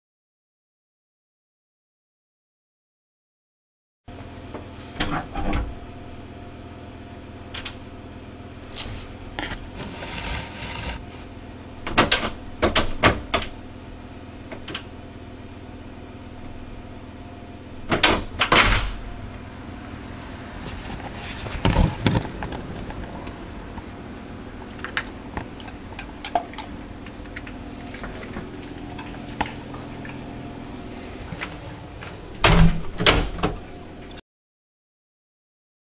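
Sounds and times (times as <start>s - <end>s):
steady low hum: 4.1s - 34.2s.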